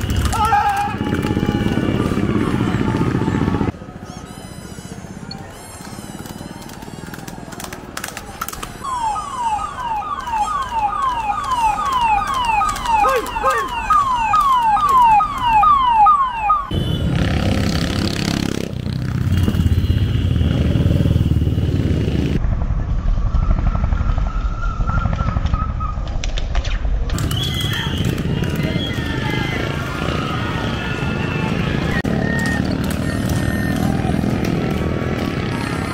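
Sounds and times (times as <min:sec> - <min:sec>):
motorcycle engines passing: 0:00.0 - 0:04.0, 0:04.8 - 0:22.4, 0:27.2 - 0:35.9
street noise: 0:00.0 - 0:35.9
siren in falling-pitch sweeps: 0:08.8 - 0:16.7.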